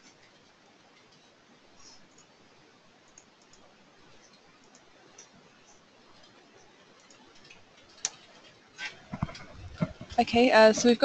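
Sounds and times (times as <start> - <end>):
soft clicks: 3.1 - 6.4.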